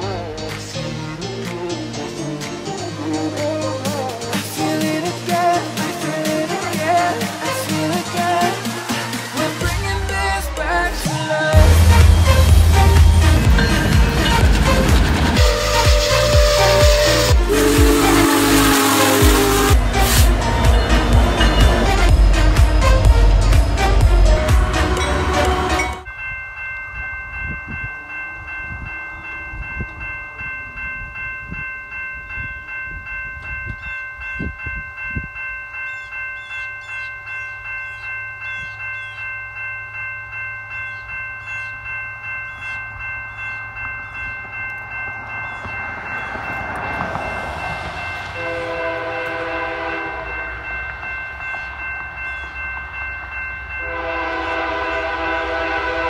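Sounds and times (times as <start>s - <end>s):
crossing bell ringing: 0.0s - 56.0s
train horn blasts: 11.6s - 26.0s, 48.3s - 50.6s, 53.8s - 56.0s.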